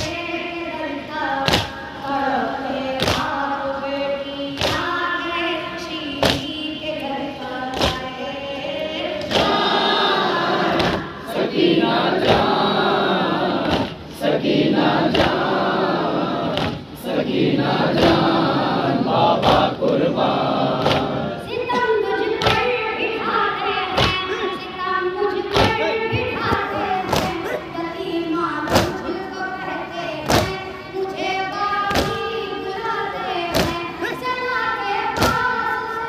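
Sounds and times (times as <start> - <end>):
boy reciting into a microphone: 0.0 - 36.0
group of men singing: 8.8 - 21.5, 33.0 - 34.4.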